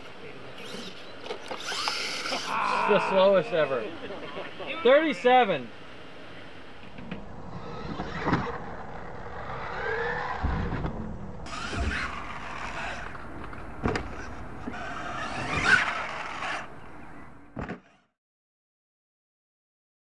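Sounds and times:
toy truck motor whine revving: 0.6s - 2.6s, 7.5s - 10.4s, 11.5s - 13.1s, 14.6s - 16.7s
tires spinning on loose dirt: 7.3s - 16.8s
truck landing thumps: 10.4s - 12.3s, 13.8s - 14.2s.

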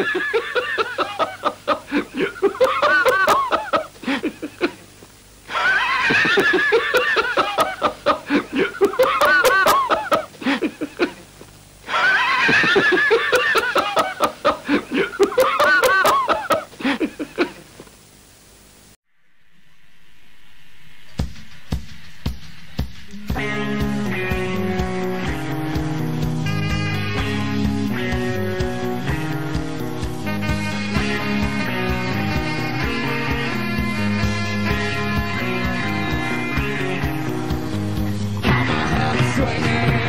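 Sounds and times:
person laughing: 0.0s - 4.8s, 5.5s - 11.3s, 11.9s - 17.7s.

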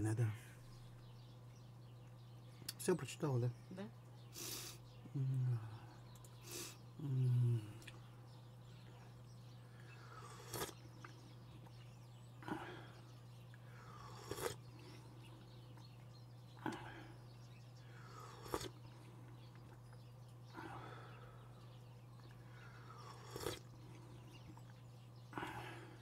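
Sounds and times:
steady low hum: 0.0s - 26.0s
mouth clicks and smacks: 7.7s - 8.0s, 10.4s - 11.8s.

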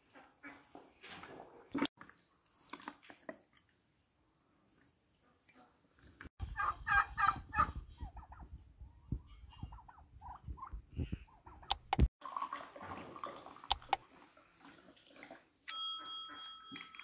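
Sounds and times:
turkeys gobbling: 6.5s - 8.5s.

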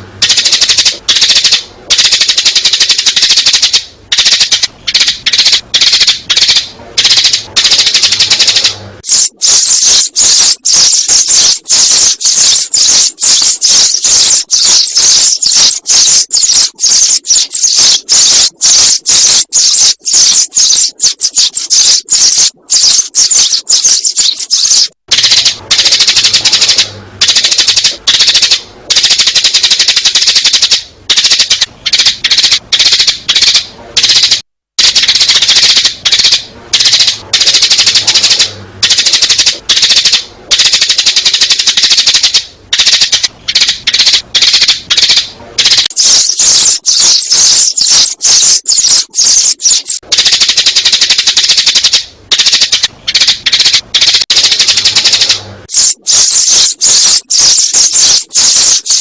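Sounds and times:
sparrows chirping: 9.1s - 24.9s, 45.9s - 50.0s, 55.7s - 59.0s.

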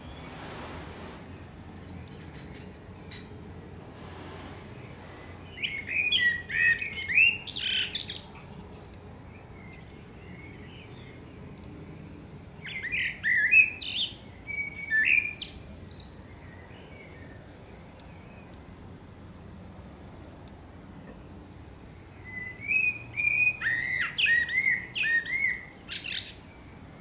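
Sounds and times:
blackbird singing: 5.4s - 8.4s, 12.6s - 17.4s, 22.1s - 26.6s.

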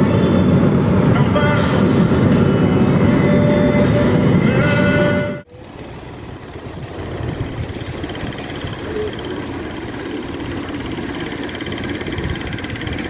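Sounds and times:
road and engine rumble in vehicle: 0.0s - 13.0s.

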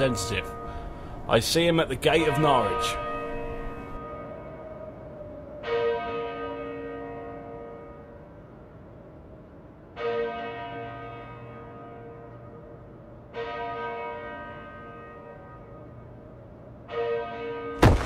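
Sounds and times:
church bell tolling: 0.0s - 9.2s, 9.8s - 18.0s
sharp loud bang: 17.8s - 18.0s.

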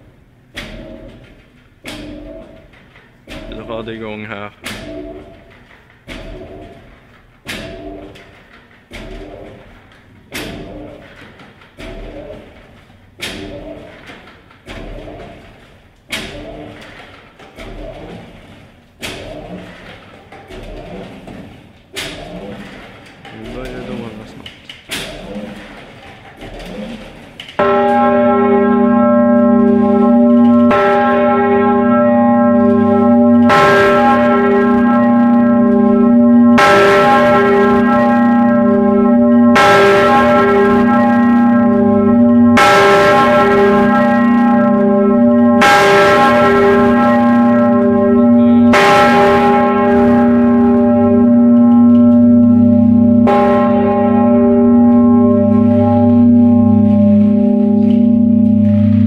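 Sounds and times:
large church bell clanging: 25.0s - 59.0s
deep bell ringing hum: 27.6s - 59.0s.

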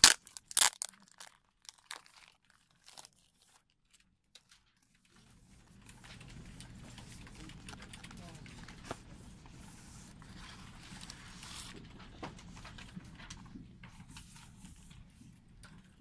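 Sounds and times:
plastic wrap crinkling: 0.0s - 4.9s.

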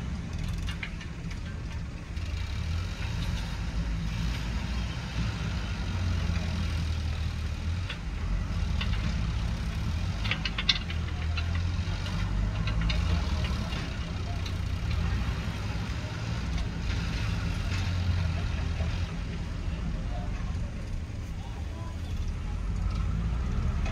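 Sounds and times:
sharp clicks or clanks: 0.0s - 4.7s, 6.1s - 19.6s
backhoe diesel engine running: 0.0s - 23.9s.

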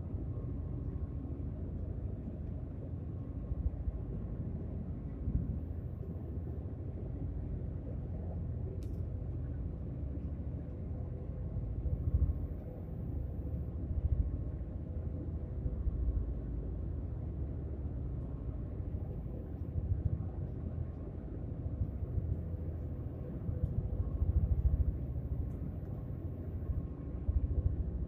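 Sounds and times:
faint machinery hum: 0.0s - 28.0s
ship rumble: 9.5s - 28.0s.

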